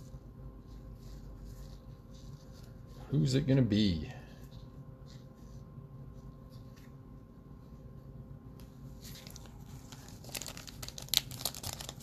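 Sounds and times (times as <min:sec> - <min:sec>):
card pack wrapper crinkling and tearing: 0:09.0 - 0:12.0.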